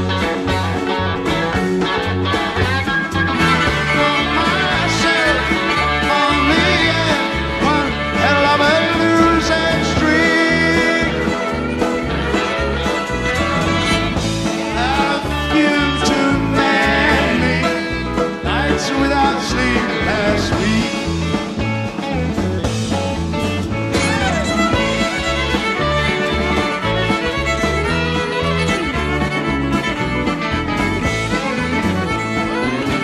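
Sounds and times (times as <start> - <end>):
bass guitar: 0.0 - 33.0
drums: 0.0 - 33.0
electric guitar: 0.0 - 33.0
piano: 0.0 - 33.0
violin: 0.0 - 33.0.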